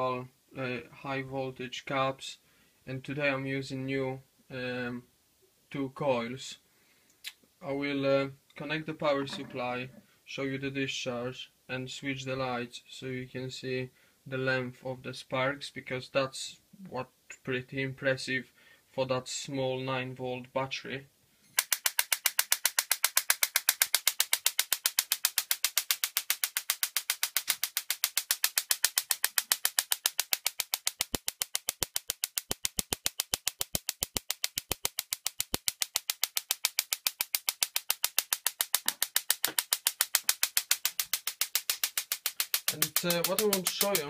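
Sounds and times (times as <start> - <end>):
tesla coil sparks snapping: 21.6 - 44.0.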